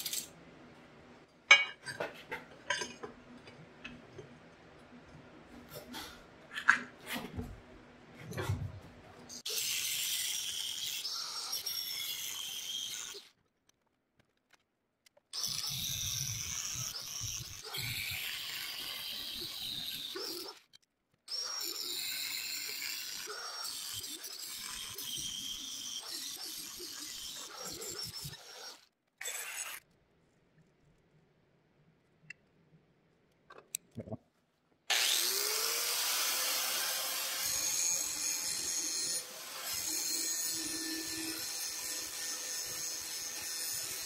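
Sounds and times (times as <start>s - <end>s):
angle grinder cutting steel: 9.3s - 13.3s, 15.4s - 20.6s, 21.3s - 29.8s, 34.9s - 44.0s.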